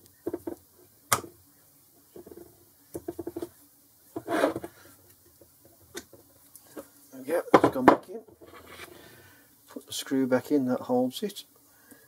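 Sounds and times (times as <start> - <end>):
metal chuck scraping on bench: 4.2 - 4.7, 8.4 - 8.9.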